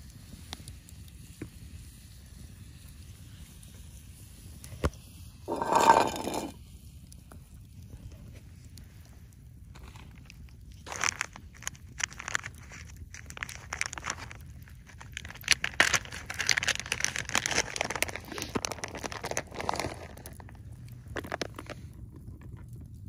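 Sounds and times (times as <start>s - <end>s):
plastic packaging crinkling: 9.8s - 21.9s.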